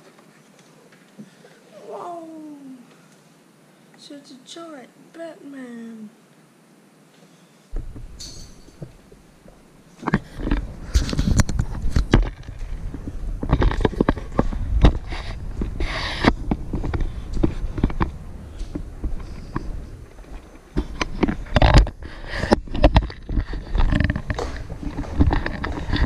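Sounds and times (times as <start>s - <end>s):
thumps knocks and rustles: 7.7s - 26.0s.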